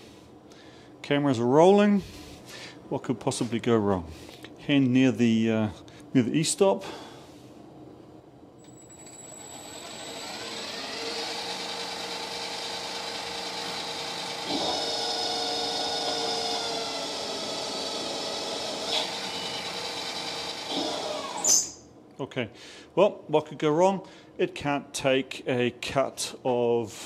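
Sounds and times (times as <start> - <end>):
lathe spindle whining: 8.7 - 21.6.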